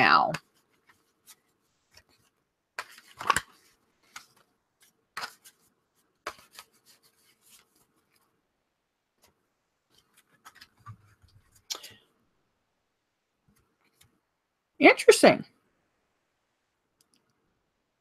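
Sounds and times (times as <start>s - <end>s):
cards being shuffled: 0.3s - 8.3s, 9.2s - 12.0s.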